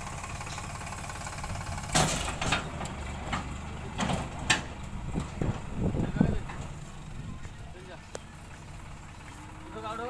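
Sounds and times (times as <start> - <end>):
tractor engine running: 0.0 - 10.0.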